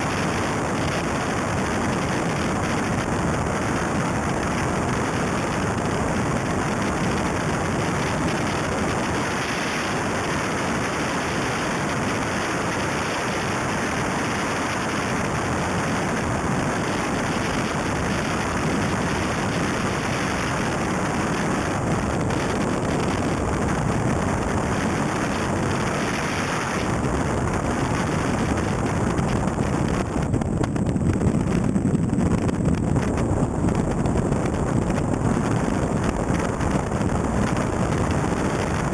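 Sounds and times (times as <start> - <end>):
wind buffeting camera: 0.0 - 38.9
heavy low rumble: 13.8 - 38.9.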